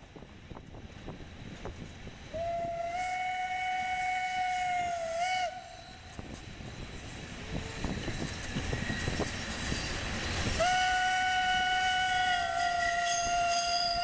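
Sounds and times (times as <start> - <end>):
train wheels rattling on track: 0.0 - 14.0
steam whistle: 2.3 - 6.2, 10.5 - 14.0.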